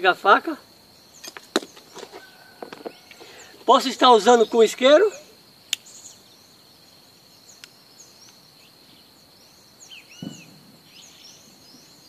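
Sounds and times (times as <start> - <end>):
bird chirps: 1.0 - 12.0
faint click: 7.6 - 8.4.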